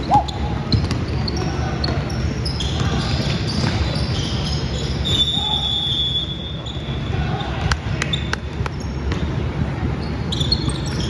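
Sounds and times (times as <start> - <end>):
hubbub of players and spectators: 0.0 - 11.0
basketball bouncing on floor: 0.7 - 1.2.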